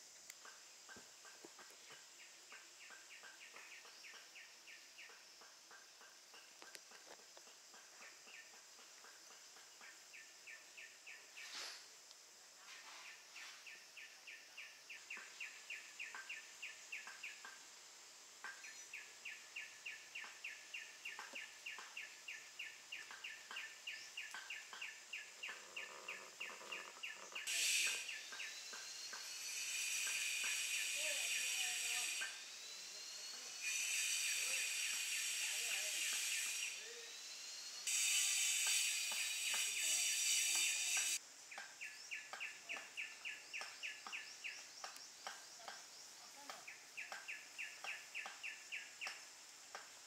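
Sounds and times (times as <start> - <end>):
high-pitched insect drone: 24.3 - 41.2.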